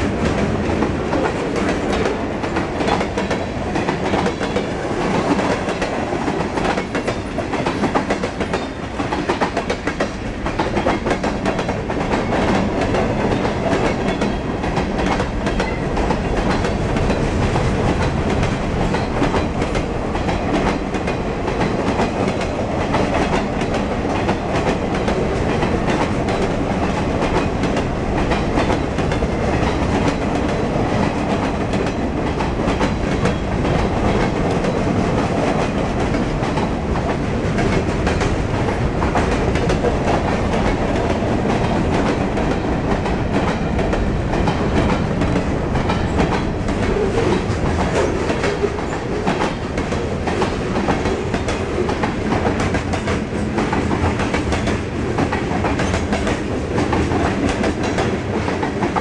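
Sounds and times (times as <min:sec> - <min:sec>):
freight train rumbling past: 0:00.0 - 0:59.0
wheels clacking on rails: 0:00.0 - 0:59.0.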